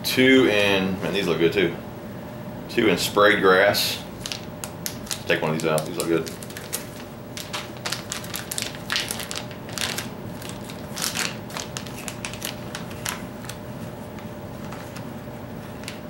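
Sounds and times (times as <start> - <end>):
plastic bag crinkling: 4.2 - 16.0.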